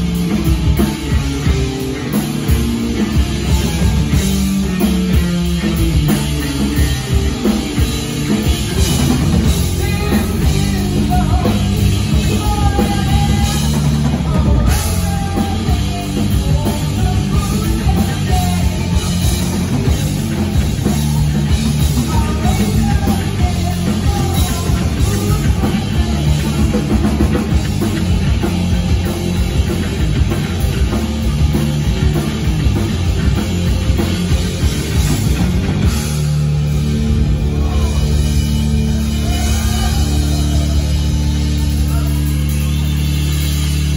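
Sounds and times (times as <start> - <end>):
drum kit: 0.0 - 43.9
electric bass: 0.0 - 43.9
electric guitar: 0.0 - 43.9
person singing: 9.3 - 20.0, 20.7 - 27.5.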